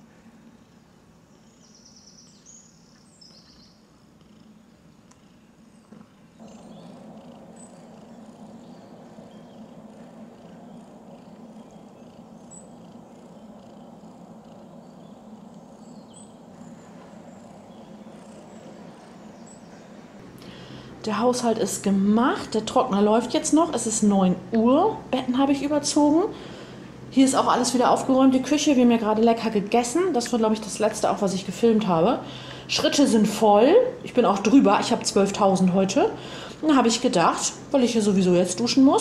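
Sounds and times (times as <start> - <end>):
cat purring: 3.2 - 33.2.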